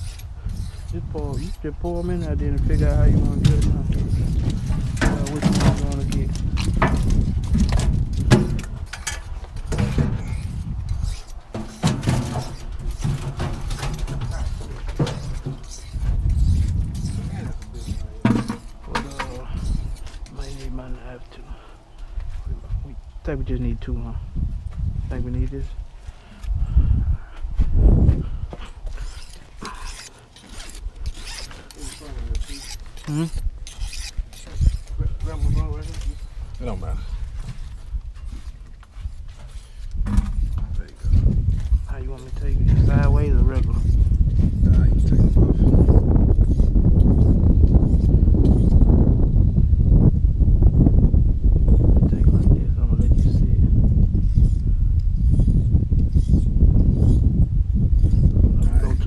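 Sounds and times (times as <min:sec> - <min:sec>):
zipper rasping open: 0:28.7 - 0:37.0.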